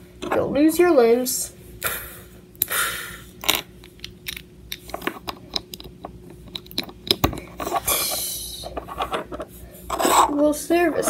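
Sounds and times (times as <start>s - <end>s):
plastic pieces clicking: 3.4s - 7.8s.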